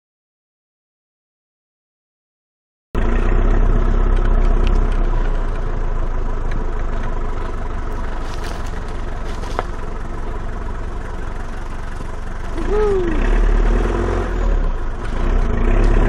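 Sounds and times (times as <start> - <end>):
vehicle engine driving on dirt track: 3.0 - 16.0.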